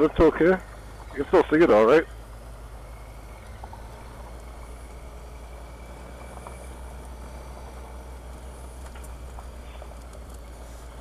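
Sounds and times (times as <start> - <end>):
motorcycle engine hum: 0.0 - 11.0
faint clicks: 3.2 - 10.7.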